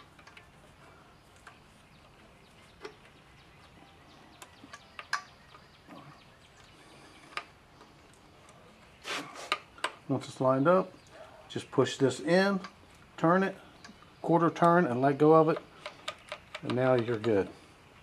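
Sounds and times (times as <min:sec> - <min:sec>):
metal parts clicking and tapping: 0:00.0 - 0:00.6, 0:04.3 - 0:05.6, 0:13.8 - 0:17.5
low steady hiss: 0:00.0 - 0:18.0.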